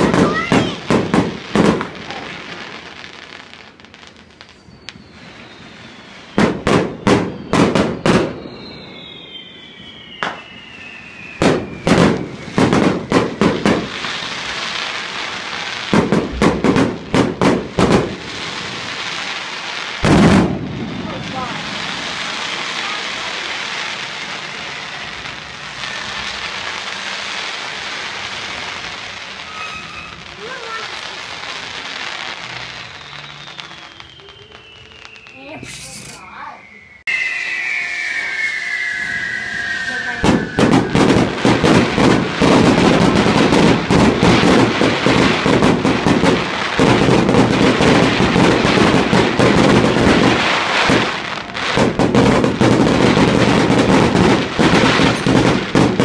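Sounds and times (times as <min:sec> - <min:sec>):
firework bangs: 0:00.0 - 0:56.0
firework whistles sliding down: 0:04.1 - 0:15.9, 0:18.0 - 0:56.0
loud firework boom: 0:05.0 - 0:14.6, 0:15.9 - 0:18.8, 0:20.0 - 0:23.3, 0:37.1 - 0:56.0
crackling hiss of sparks: 0:21.0 - 0:37.2.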